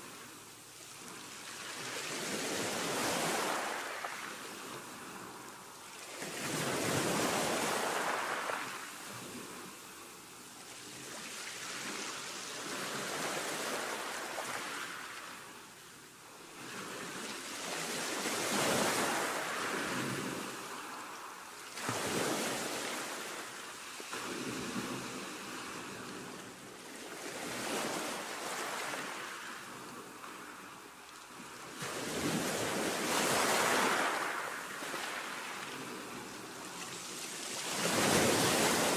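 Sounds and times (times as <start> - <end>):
rushing surf-like noise: 0.0 - 15.8, 31.9 - 38.9.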